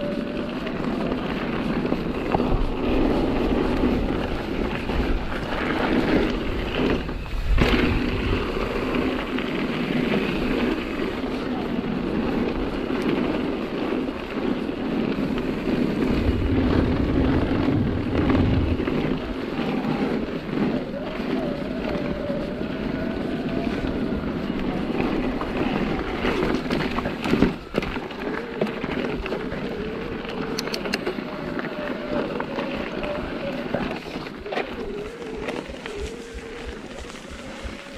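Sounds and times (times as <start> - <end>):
bike rattle: 0.0 - 21.6
bike tyres on gravel: 0.0 - 37.9
wind buffeting microphone: 0.0 - 37.9.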